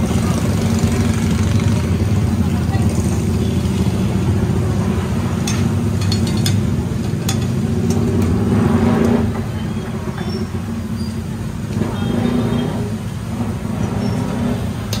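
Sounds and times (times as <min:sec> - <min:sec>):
metal tongs clicking on pans: 0:05.4 - 0:08.1.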